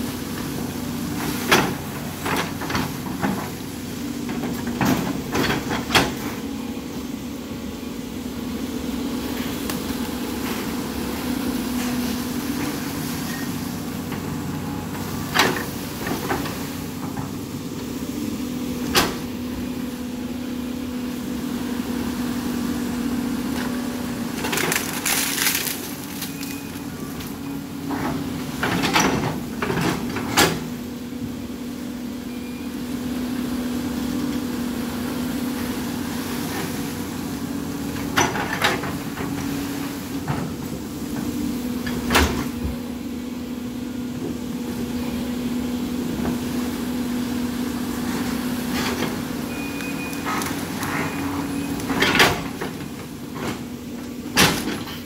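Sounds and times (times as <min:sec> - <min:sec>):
excavator diesel engine: 0:00.0 - 0:55.0
wood snapping and breaking: 0:24.5 - 0:26.5.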